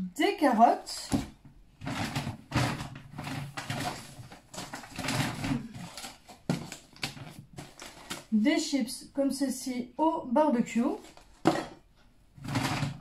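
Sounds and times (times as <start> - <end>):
shopping bag rustling: 1.8 - 8.4.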